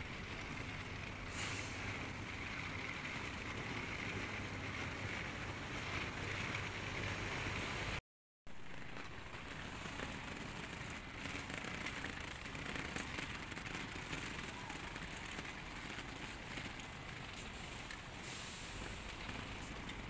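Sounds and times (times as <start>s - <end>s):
suitcase wheels rattling on concrete: 8.6s - 20.0s
footsteps: 12.9s - 20.0s.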